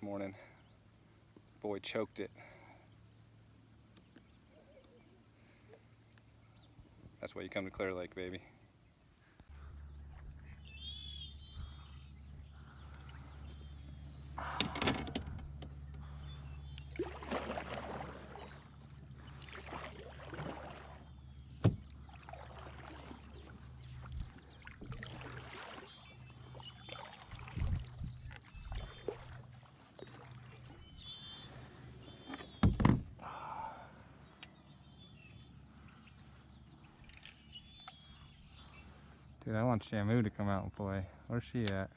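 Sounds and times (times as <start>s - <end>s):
steady low hum: 0.0s - 40.1s
water sloshing around a kayak: 8.5s - 39.4s
bird chirps: 9.7s - 14.4s, 28.1s - 33.0s, 34.2s - 39.4s.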